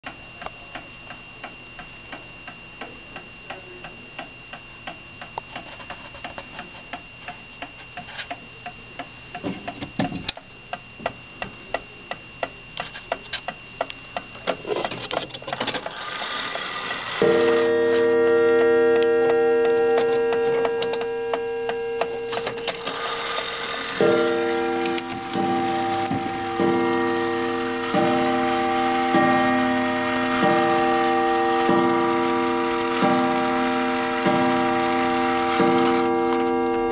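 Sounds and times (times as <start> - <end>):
clock ringing chord: 15.9 - 36.9
pendulum clock ticking: 15.9 - 36.9.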